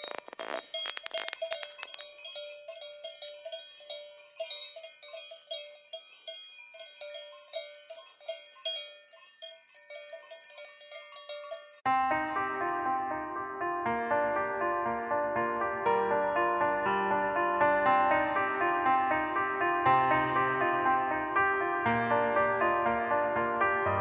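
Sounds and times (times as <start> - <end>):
cowbells clanking: 0.0 - 11.8.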